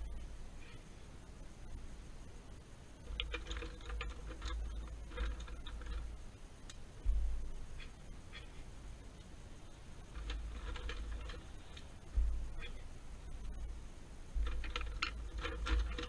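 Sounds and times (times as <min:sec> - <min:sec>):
markers rattling in tin box: 0:03.1 - 0:06.1, 0:14.4 - 0:16.0
faint ticks: 0:03.1 - 0:07.2, 0:07.8 - 0:13.7
dull thump: 0:07.0 - 0:07.5, 0:12.0 - 0:12.6.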